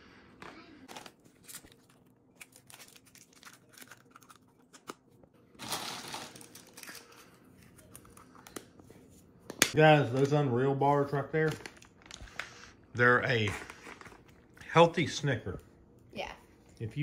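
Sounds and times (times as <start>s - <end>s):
candy wrappers crinkling: 0.8s - 8.8s, 10.0s - 15.2s.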